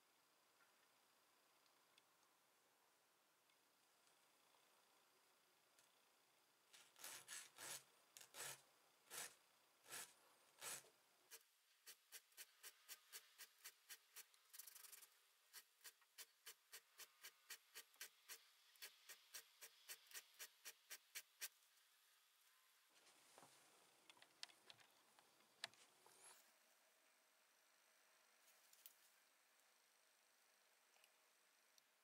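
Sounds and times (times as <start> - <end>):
hand file scraping metal: 7.0 - 10.8.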